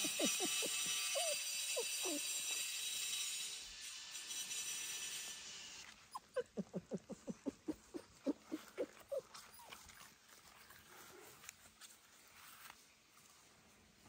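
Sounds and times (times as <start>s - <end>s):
small dog whimpering: 0.0s - 2.7s, 6.1s - 10.2s.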